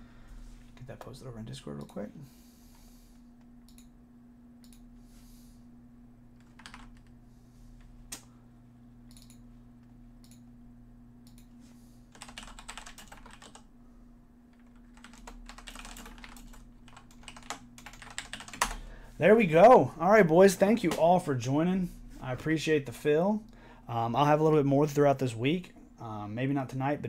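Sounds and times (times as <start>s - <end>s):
faint steady hum: 0.0s - 27.0s
typing on computer keyboard: 6.4s - 7.1s, 12.2s - 13.6s, 14.6s - 18.8s.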